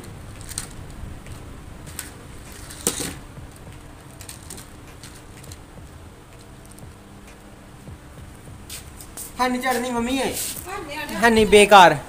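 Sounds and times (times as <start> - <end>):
toy car wheels clicking and knocking: 0.3 - 5.7.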